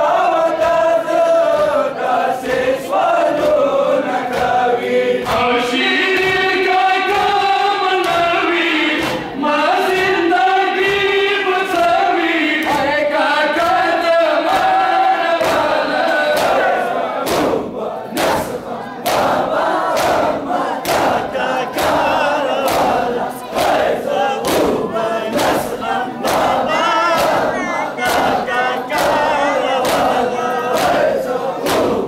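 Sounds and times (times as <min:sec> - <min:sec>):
men chanting in unison: 0:00.0 - 0:32.0
chest-beating slaps: 0:04.3 - 0:06.5, 0:09.0 - 0:10.2, 0:15.4 - 0:32.0.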